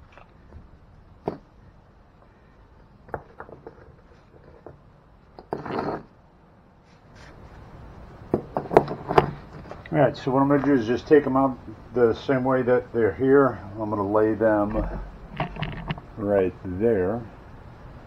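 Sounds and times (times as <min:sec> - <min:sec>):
brick scraping: 0:03.2 - 0:04.8, 0:05.4 - 0:06.2, 0:08.4 - 0:09.8, 0:14.5 - 0:16.1.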